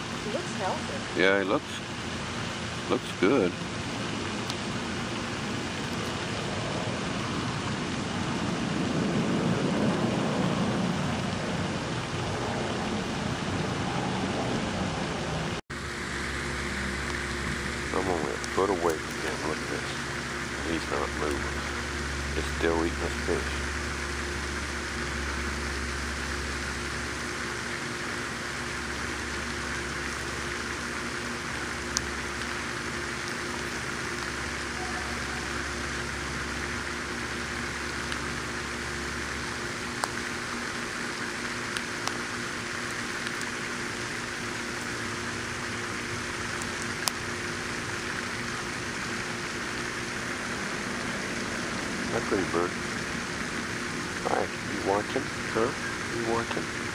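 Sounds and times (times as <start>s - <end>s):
outdoor background hiss: 0.0s - 56.9s
low rumble: 5.6s - 18.4s.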